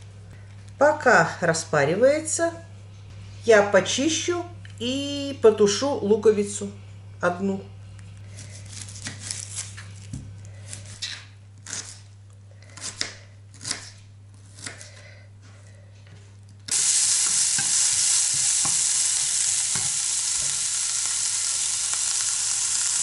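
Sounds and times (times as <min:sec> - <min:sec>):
onion sizzling in pan: 0:16.7 - 0:23.0.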